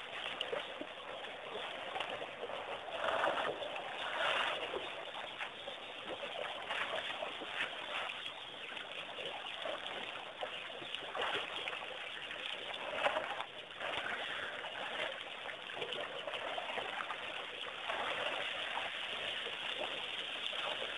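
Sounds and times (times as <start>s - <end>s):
water trickling: 0.0s - 20.9s.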